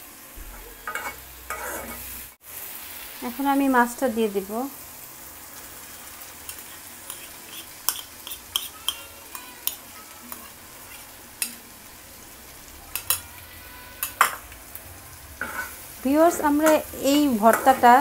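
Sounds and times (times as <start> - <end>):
oil sizzling in a wok: 0.0 - 18.0
metal spatula scraping a pan: 0.4 - 2.4, 6.0 - 11.6, 12.9 - 14.5, 15.4 - 18.0.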